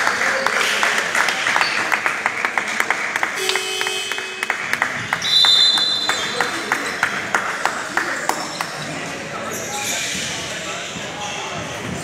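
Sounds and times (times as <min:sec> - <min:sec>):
sharp claps: 0:00.0 - 0:08.8
spectators applauding: 0:00.0 - 0:08.8.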